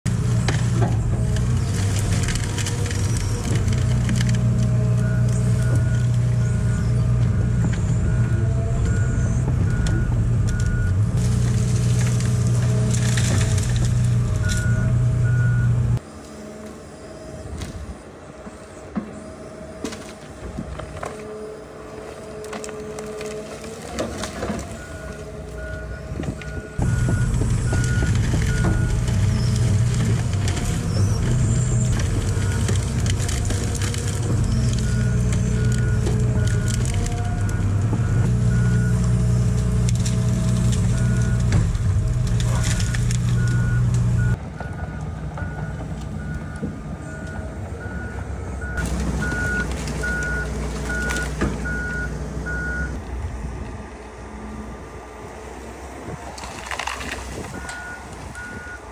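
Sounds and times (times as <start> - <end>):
excavator diesel engine running: 0.1 - 58.9
wood cracking and snapping: 0.5 - 6.4, 9.8 - 14.8, 22.0 - 25.6, 26.2 - 44.3, 48.8 - 52.2, 56.3 - 58.5.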